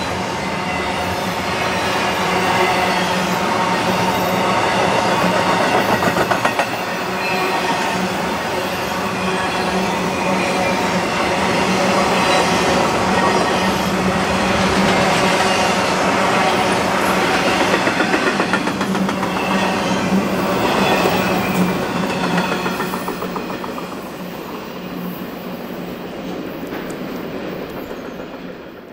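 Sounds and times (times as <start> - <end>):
freight train wheels rumbling on rail: 0.0 - 28.9
wheels clicking over rail joints: 21.4 - 24.2.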